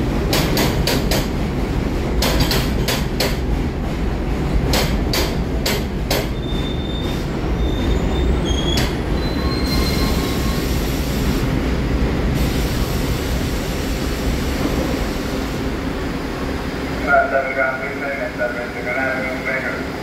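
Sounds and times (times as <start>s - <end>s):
train rumble: 0.0s - 20.0s
wheels clacking over rail joints: 2.2s - 3.5s
wheel squeals: 6.3s - 10.7s.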